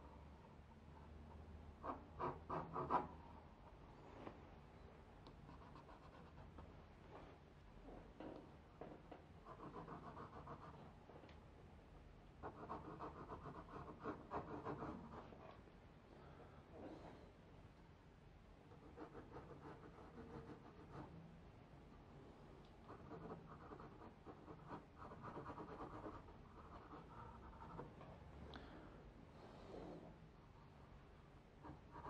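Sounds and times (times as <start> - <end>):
pencil scratching on paper: 1.8 - 3.2, 5.4 - 6.7, 9.4 - 11.0, 12.4 - 15.5, 18.7 - 21.2, 22.8 - 28.0, 31.6 - 32.0.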